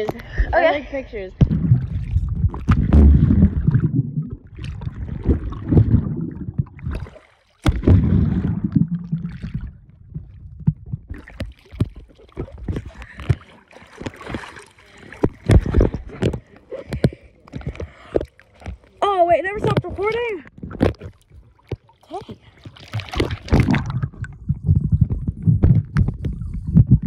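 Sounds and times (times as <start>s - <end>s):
muffled underwater water rumbling: 0.0s - 27.0s
knocks and clicks on camera: 24.6s - 27.0s.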